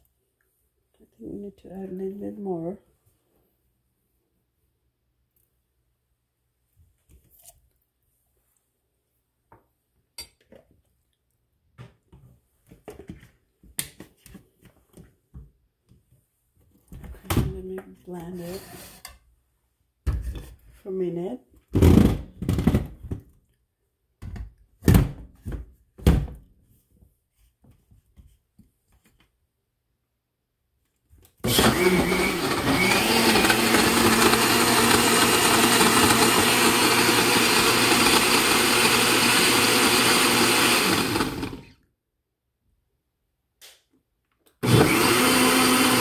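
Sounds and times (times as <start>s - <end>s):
countertop blender running: 31.4s - 41.7s, 44.6s - 46.0s.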